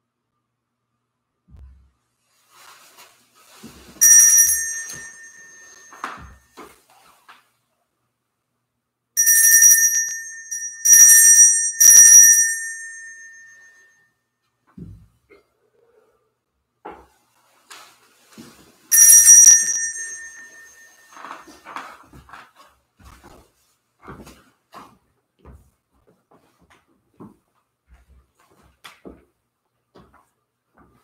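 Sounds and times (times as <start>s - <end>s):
hand bell ringing: 4.0s - 6.4s, 9.2s - 13.9s, 18.9s - 21.5s.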